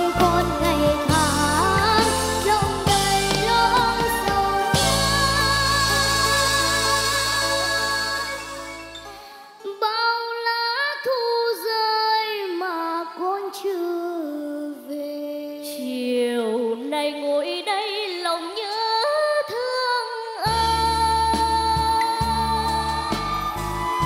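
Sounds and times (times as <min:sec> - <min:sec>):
boy singing: 0:00.0 - 0:08.3, 0:09.6 - 0:23.3
girl singing: 0:00.0 - 0:08.5, 0:09.6 - 0:24.0
band backing with bass: 0:00.0 - 0:09.3, 0:20.5 - 0:24.0.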